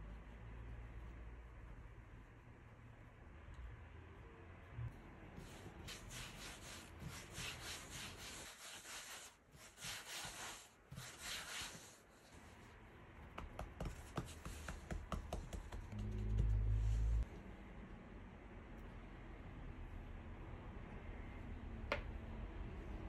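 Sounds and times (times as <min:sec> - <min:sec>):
hands rolling dough on a mat: 0:05.3 - 0:17.2.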